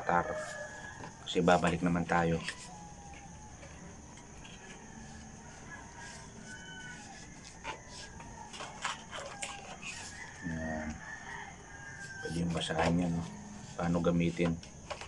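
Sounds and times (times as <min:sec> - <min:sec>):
faint rooster crowing: 0:00.0 - 0:14.6.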